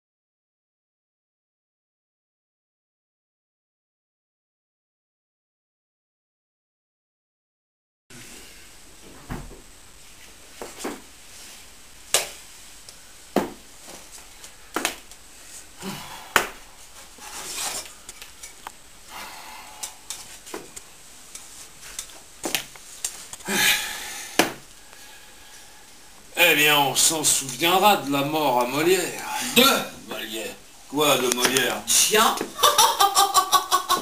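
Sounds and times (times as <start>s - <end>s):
soft rustles: 8.3s - 15.8s, 20.1s - 23.5s
hiss: 23.2s - 26.0s.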